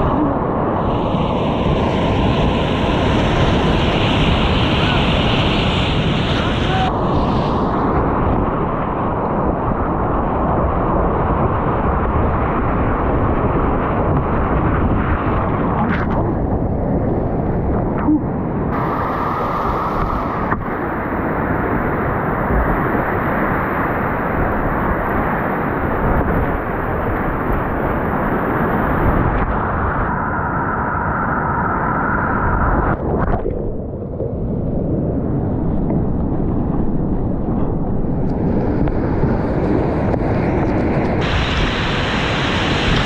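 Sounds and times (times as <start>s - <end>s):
whitewater rapids rushing: 18.8s - 28.7s
spray splashing over boat: 41.2s - 43.0s.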